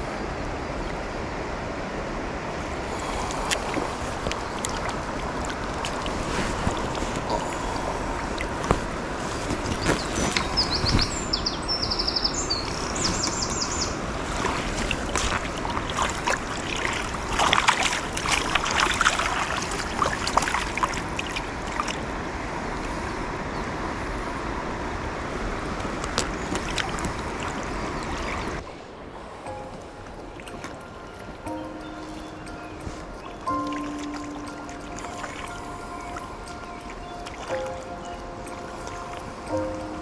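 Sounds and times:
river water running: 0:00.0 - 0:40.0
fish splashing in landing net: 0:14.2 - 0:22.0.

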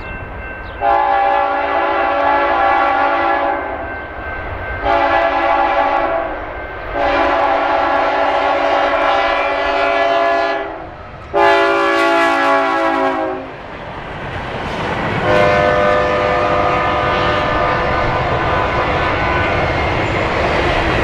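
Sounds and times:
rail cars rumbling past: 0:00.0 - 0:21.0
locomotive air horn blasts: 0:00.8 - 0:03.8, 0:04.9 - 0:06.3, 0:07.0 - 0:13.5, 0:15.2 - 0:19.5.

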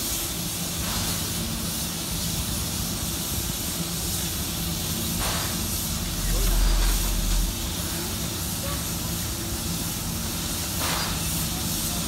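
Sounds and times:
steam hissing: 0:00.0 - 0:12.0
steady low hum: 0:04.3 - 0:09.7.

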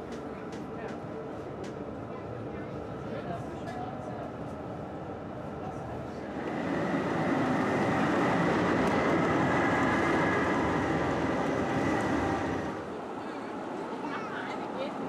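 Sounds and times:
tram wheels on rails: 0:06.2 - 0:15.0.

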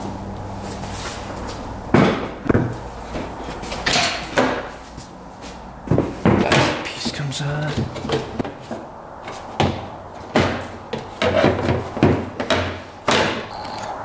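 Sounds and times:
plastic seat clunks and knocks: 0:05.9 - 0:08.6.

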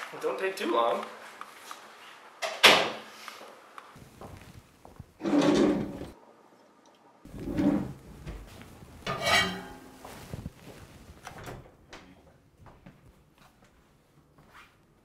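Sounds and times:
kitchen drawer sliding: 0:05.2 - 0:06.2, 0:07.3 - 0:08.5.

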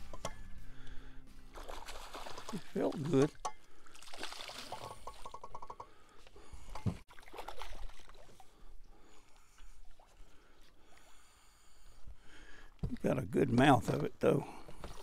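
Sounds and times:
fish splashing at water surface: 0:01.5 - 0:05.7, 0:07.0 - 0:08.5.

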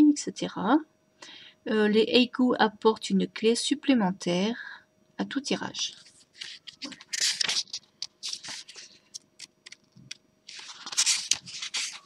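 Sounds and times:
paper pages rustling and flicking: 0:05.8 - 0:12.0.

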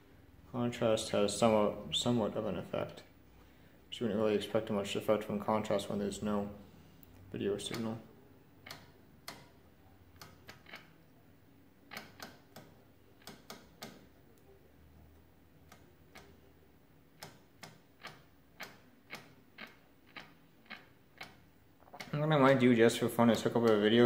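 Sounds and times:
faint low hum: 0:00.0 - 0:24.0
television control knob clicks: 0:11.9 - 0:14.1.

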